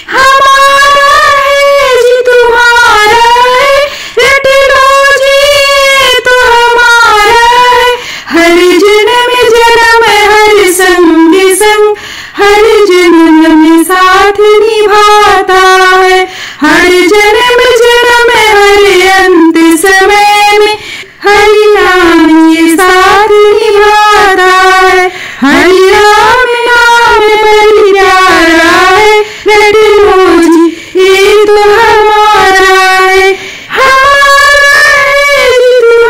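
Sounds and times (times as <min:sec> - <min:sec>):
woman singing devotional song: 0:00.0 - 0:36.0.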